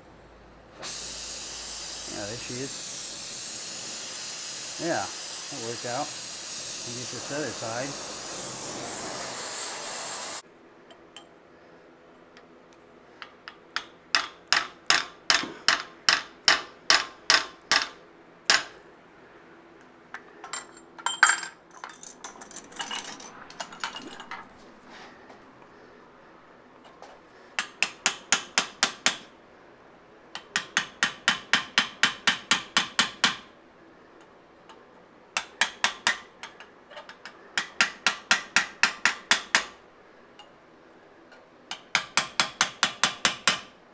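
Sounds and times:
gas torch hissing: 0:00.8 - 0:10.4
hammer striking chisel on metal: 0:13.2 - 0:18.8, 0:27.6 - 0:29.2, 0:30.4 - 0:33.5, 0:35.4 - 0:39.8, 0:41.7 - 0:43.7.

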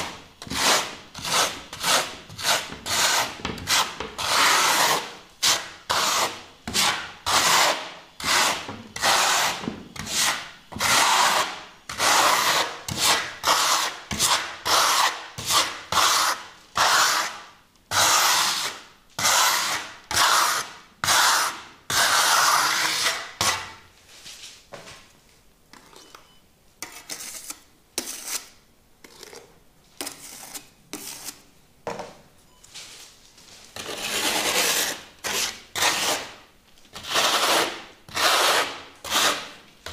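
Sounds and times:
trowel scraping wet plaster: 0:00.0 - 0:23.7, 0:26.8 - 0:31.4, 0:33.8 - 0:39.9.

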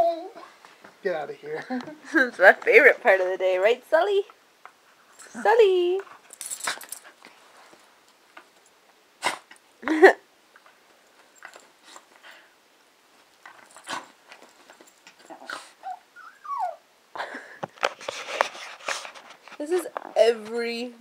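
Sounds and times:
dog whining: 0:00.0 - 0:00.5, 0:15.2 - 0:16.9
dogs shuffling and rustling: 0:02.4 - 0:08.8, 0:10.5 - 0:15.8, 0:17.5 - 0:20.9.

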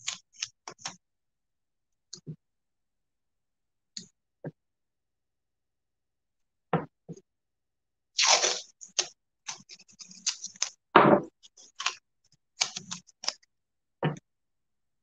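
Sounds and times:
knocks on wooden table: 0:11.0 - 0:11.3.

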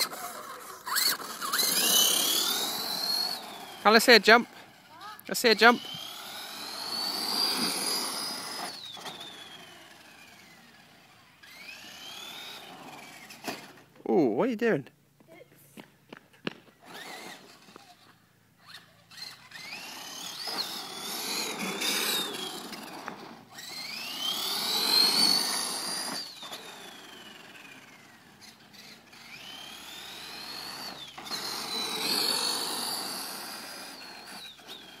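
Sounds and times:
electric motor whining: 0:00.0 - 0:13.9, 0:16.8 - 0:35.0
tyre noise on road: 0:19.1 - 0:35.0.

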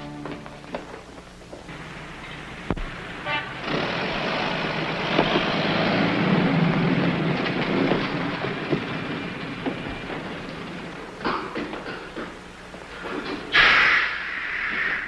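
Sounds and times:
loud engine rumble: 0:01.7 - 0:13.7
short horn toot: 0:03.2 - 0:03.7
sharp knock: 0:13.5 - 0:15.0.

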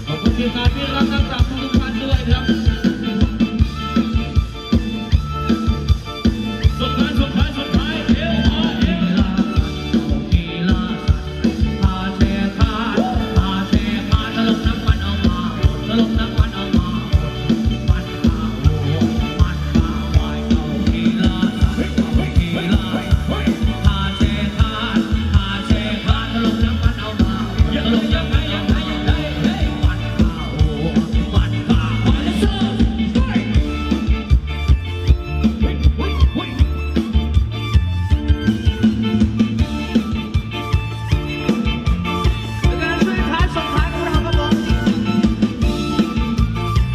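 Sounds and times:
drum kit beat: 0:00.0 - 0:46.9
electric guitar: 0:00.0 - 0:46.9
live band playing dance song: 0:00.0 - 0:46.9
person singing: 0:06.6 - 0:34.0.

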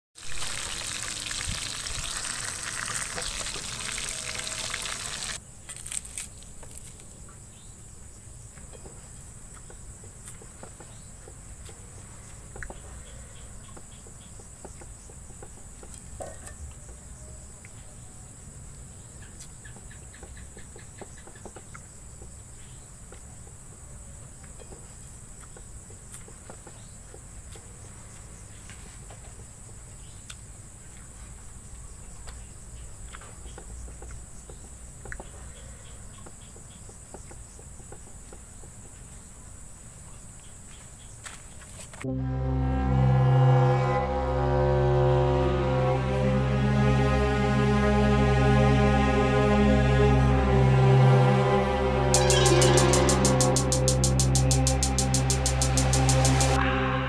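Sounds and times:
fish sizzling in hot oil: 0:00.2 - 0:05.4
crickets chirping: 0:00.6 - 0:42.2.

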